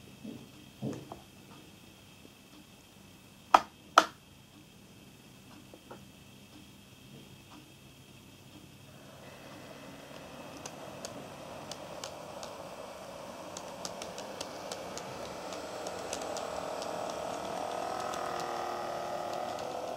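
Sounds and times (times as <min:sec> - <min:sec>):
wheels ticking over rail joints: 0:08.6 - 0:19.9
model train motor whine: 0:08.9 - 0:19.9.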